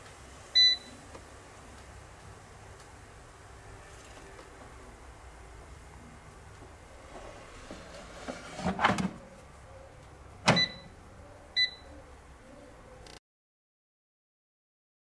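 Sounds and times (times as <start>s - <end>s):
plastic drawer sliding scrape: 7.0s - 9.2s.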